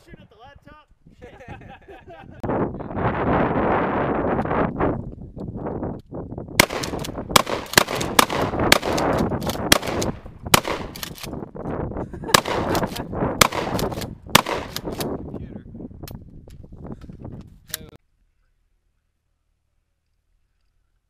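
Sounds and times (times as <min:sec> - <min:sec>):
rapid gunfire: 0:06.6 - 0:11.0, 0:12.3 - 0:15.0.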